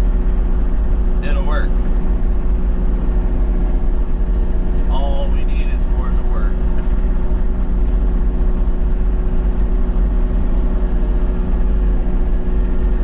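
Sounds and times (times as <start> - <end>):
excavator engine running: 0.0 - 13.0.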